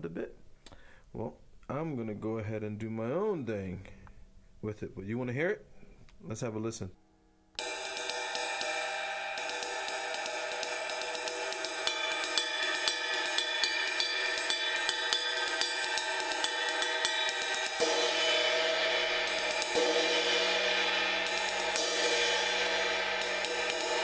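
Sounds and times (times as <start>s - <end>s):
ride cymbal played with drumstick: 7.6s - 24.0s.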